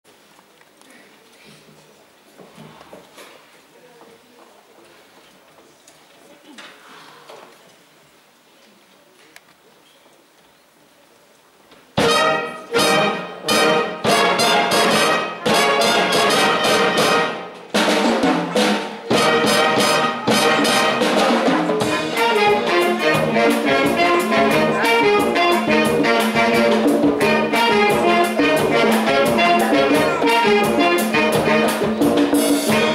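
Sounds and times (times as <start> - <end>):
wind band playing brass chords: 12.0 - 32.9.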